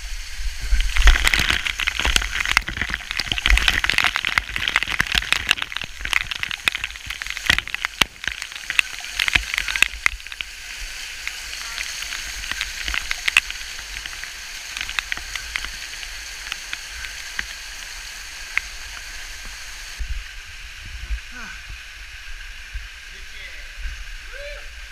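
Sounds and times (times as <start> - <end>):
waterfall hiss: 0.0 - 24.9
water drops striking camera: 0.9 - 10.5.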